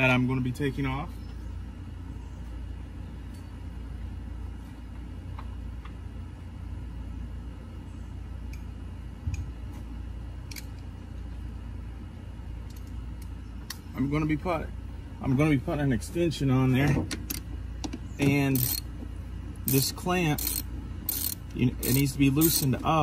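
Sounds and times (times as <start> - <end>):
low background rumble: 0.0 - 23.0
hand tool clicking: 19.7 - 22.7.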